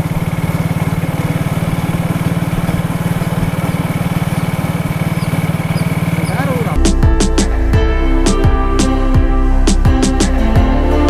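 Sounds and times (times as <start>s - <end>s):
small engine idling: 0.0s - 6.9s.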